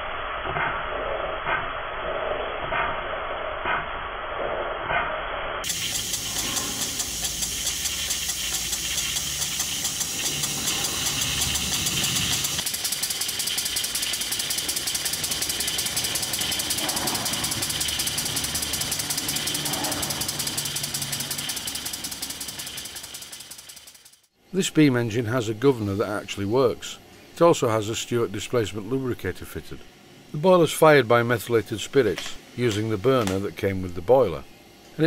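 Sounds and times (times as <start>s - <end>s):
steady steam hiss: 5.6s - 23.8s, 24.6s - 35.0s
light mechanical clatter: 5.6s - 24.3s
steam engine exhaust puffs: 5.6s - 24.3s.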